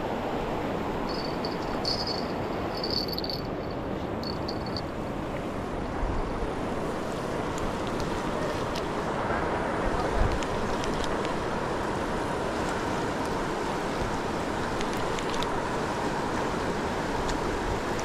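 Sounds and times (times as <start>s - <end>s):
rushing river water: 0.0s - 18.0s
thin high chirping: 1.1s - 4.8s.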